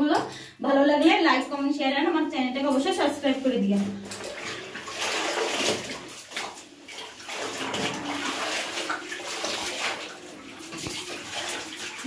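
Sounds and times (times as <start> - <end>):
water splashing in a tub: 3.2 - 12.0.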